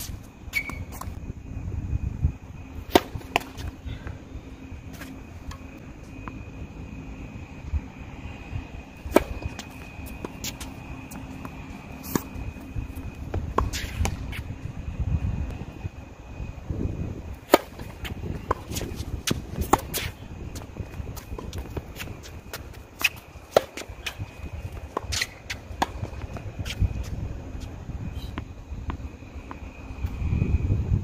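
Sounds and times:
wind rumble on microphone: 0:00.0 - 0:31.0
tennis ball hits and bounces: 0:02.8 - 0:03.8, 0:09.0 - 0:14.4, 0:17.4 - 0:27.0.

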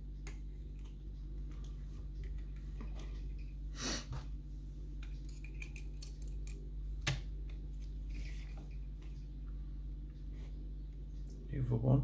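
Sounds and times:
lock-picking tools ticking and scraping: 0:05.0 - 0:06.6.

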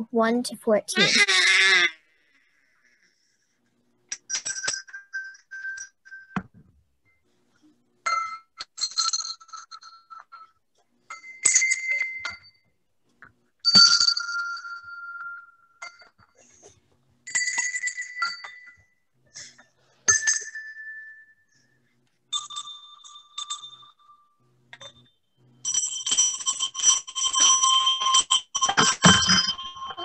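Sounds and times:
small bells ringing: 0:04.1 - 0:06.4, 0:08.0 - 0:12.7, 0:13.6 - 0:16.5, 0:17.2 - 0:30.0.

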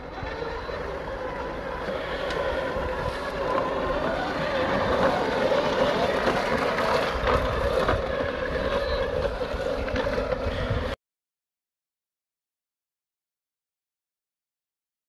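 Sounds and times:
reel mower whirring: 0:00.0 - 0:11.0.

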